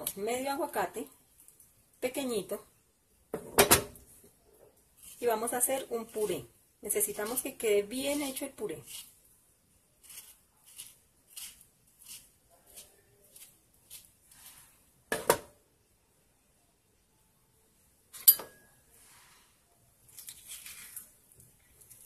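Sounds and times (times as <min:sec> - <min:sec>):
knife scoring avocado flesh: 0:10.0 - 0:14.6.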